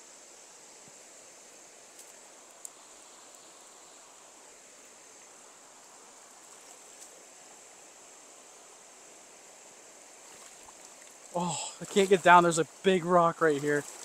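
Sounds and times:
high hiss: 0.0 - 14.0
river flowing: 0.0 - 14.0.

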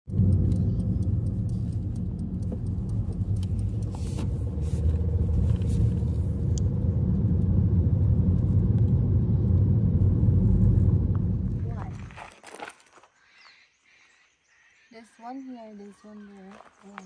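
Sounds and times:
car engine and road rumble: 0.0 - 12.8
faint ticks: 0.1 - 5.7.

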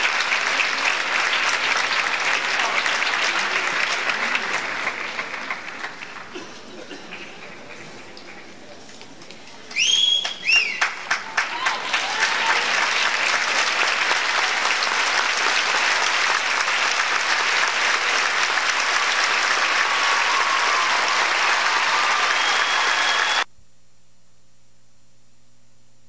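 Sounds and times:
audience applauding: 0.0 - 23.5
whistles from audience: 9.7 - 11.0, 19.8 - 23.5
faint steady hum: 22.8 - 26.0.

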